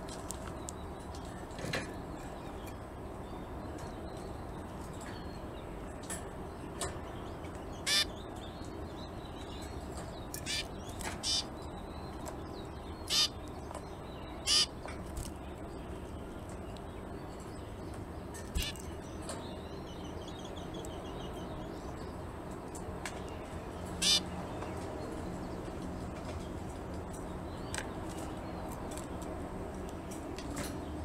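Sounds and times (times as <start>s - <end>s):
low background noise: 0.0s - 31.0s
finch calls: 7.8s - 8.2s, 10.3s - 11.5s, 13.0s - 13.5s, 14.4s - 14.8s, 18.5s - 18.9s, 24.0s - 24.3s.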